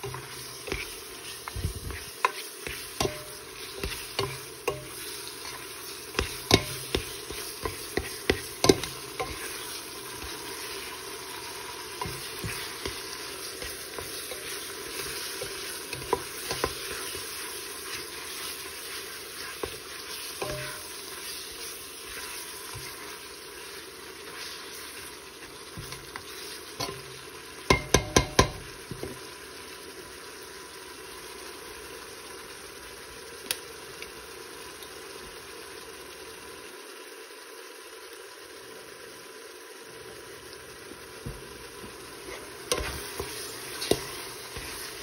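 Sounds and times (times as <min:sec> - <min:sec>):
spoon scraping a pot: 0:00.0 - 0:23.7, 0:42.2 - 0:45.0
beef sizzling in a pot: 0:00.0 - 0:45.0
spoon knocking against a pot: 0:06.2 - 0:09.4, 0:27.7 - 0:29.1.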